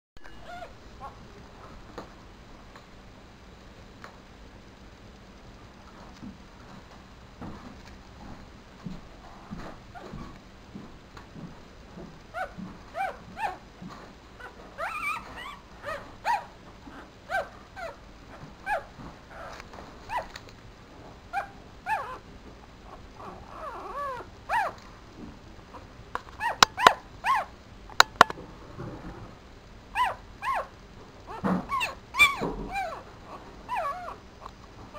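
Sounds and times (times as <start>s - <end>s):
puppy squeaking and whimpering: 0.3s - 1.2s, 12.3s - 13.6s, 14.4s - 18.0s, 18.6s - 20.3s, 21.3s - 22.2s, 22.9s - 24.8s, 26.4s - 28.3s, 29.9s - 30.7s, 31.3s - 34.2s
sharp clicks: 27.9s - 28.4s.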